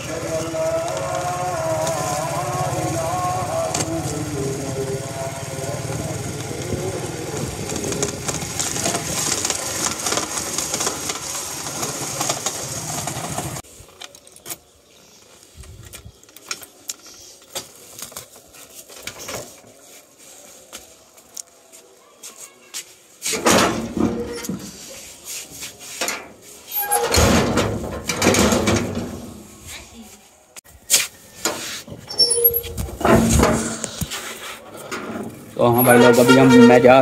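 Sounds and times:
motorcycle engine running: 0.0 - 13.6
wind noise: 15.6 - 16.2.

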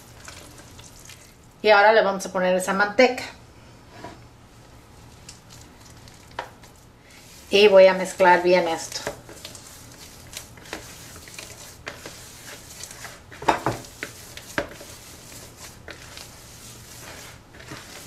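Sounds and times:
hands squishing dough: 0.0 - 1.4, 5.4 - 18.0.

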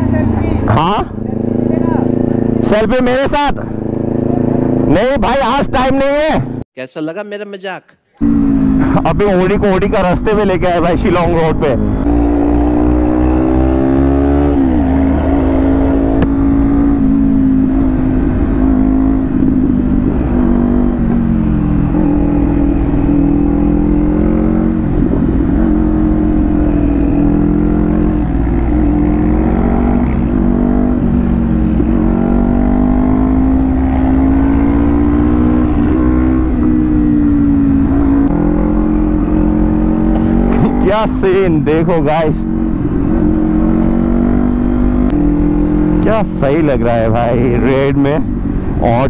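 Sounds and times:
motorcycle engine running: 0.0 - 6.6, 8.2 - 49.0
wind rumble on microphone: 12.0 - 40.6.

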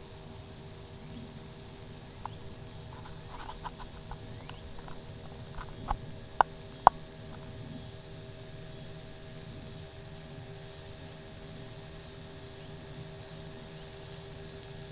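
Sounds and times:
crickets chirping: 0.0 - 14.9
faint low hum: 0.0 - 14.9
small clicks: 3.0 - 7.4.

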